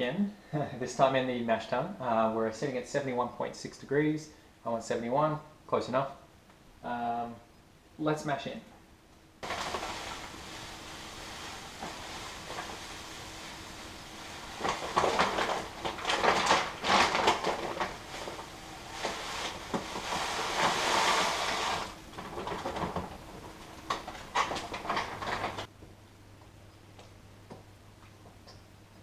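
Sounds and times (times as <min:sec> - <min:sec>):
low steady hum: 0:00.0 - 0:29.0
grain pouring: 0:09.4 - 0:23.0
plastic bag crinkling: 0:09.4 - 0:25.7.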